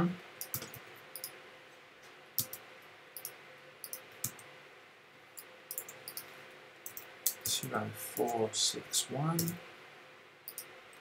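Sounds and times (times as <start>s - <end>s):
mouse and keyboard clicks: 0.4s - 1.4s, 2.4s - 2.6s, 10.5s - 10.7s.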